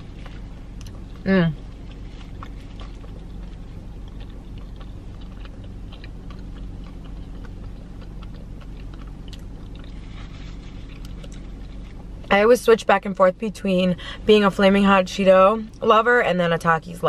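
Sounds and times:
chewing crunchy food: 0.0 - 12.3
low steady hum: 0.0 - 17.0.

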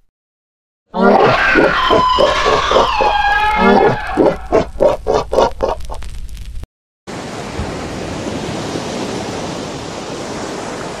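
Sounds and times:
ocean water rushing: 7.1 - 11.0.

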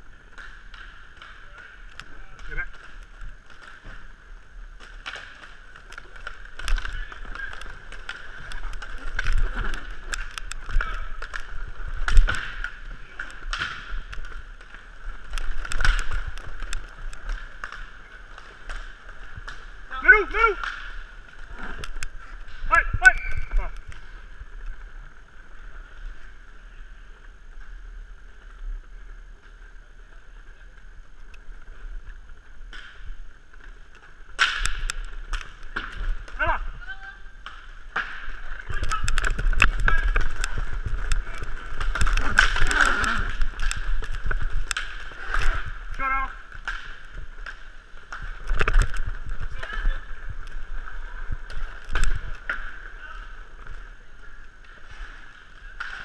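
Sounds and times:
skate wheels rolling on floor: 0.0 - 56.0
hockey sticks clacking on puck: 0.1 - 22.7, 32.7 - 36.6, 37.3 - 53.9, 54.5 - 56.0.

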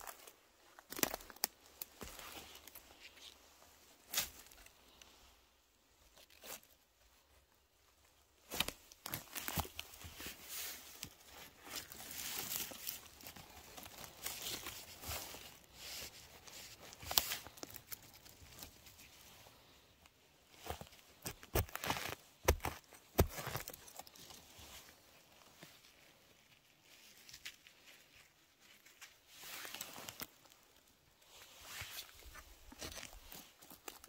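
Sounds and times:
forest litter rustling and crackling: 0.0 - 34.0
twigs snapping: 0.8 - 2.8, 16.9 - 19.0.

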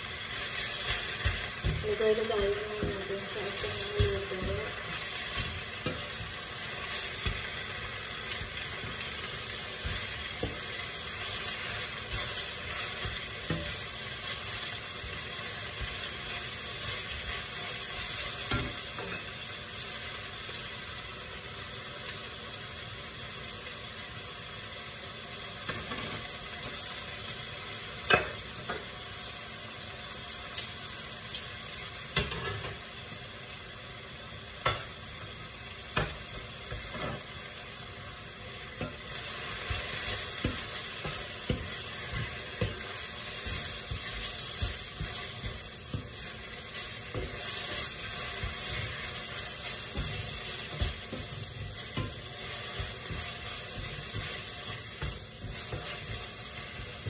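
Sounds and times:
spinach sizzling in a skillet: 0.0 - 57.0.

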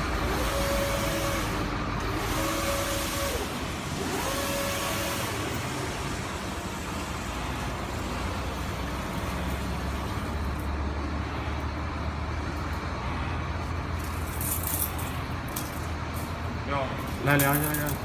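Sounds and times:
printer machine hum and whir: 0.0 - 14.0.

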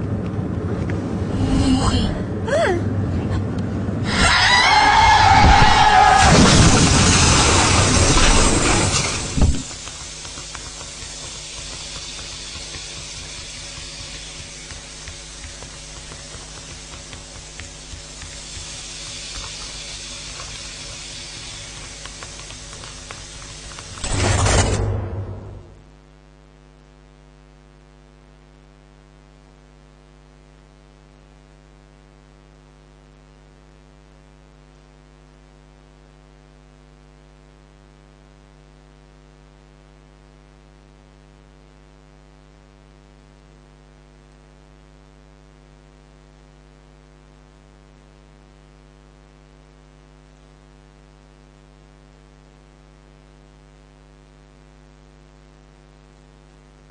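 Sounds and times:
electrical mains hum: 0.0 - 56.9
hiss: 6.7 - 24.2.

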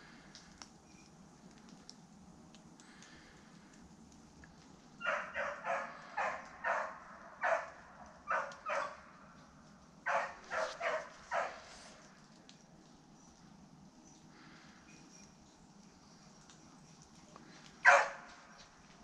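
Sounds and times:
dog barking: 5.0 - 9.1, 10.1 - 12.0, 17.8 - 18.3.

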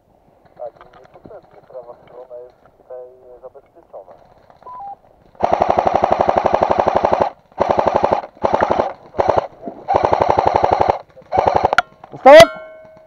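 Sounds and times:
airsoft gun automatic fire: 5.3 - 12.4.

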